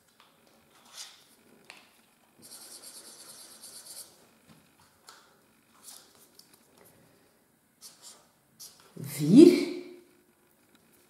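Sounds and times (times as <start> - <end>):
marker scratching on paper: 2.4 - 4.2, 7.8 - 8.9.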